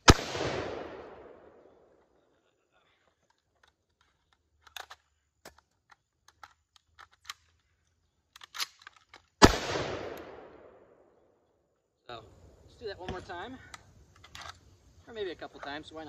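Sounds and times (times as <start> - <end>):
rifle shot with echo: 0.0 - 2.0, 9.4 - 11.2
rifle reloading clicks: 3.3 - 7.6, 8.3 - 10.3, 13.7 - 14.7.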